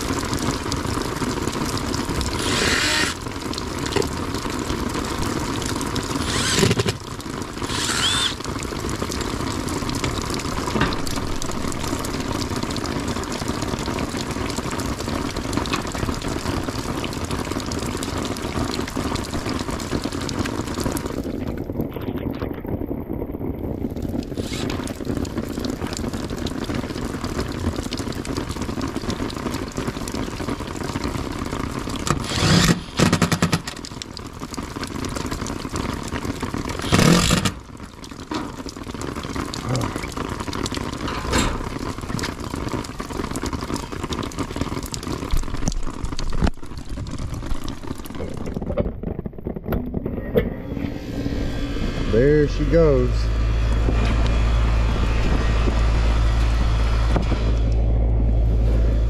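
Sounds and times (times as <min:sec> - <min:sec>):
rain pattering on metal unit: 0:00.0 - 0:59.0
cordless driver whirring: 0:02.4 - 0:03.2, 0:06.2 - 0:07.0, 0:07.7 - 0:08.4, 0:32.2 - 0:33.2, 0:36.8 - 0:37.6.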